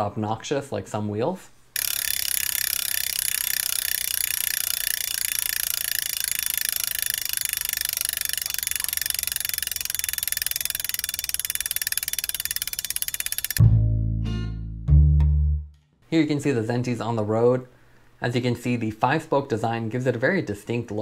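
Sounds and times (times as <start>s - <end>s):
bicycle hub ratcheting clicks: 1.8s - 13.6s.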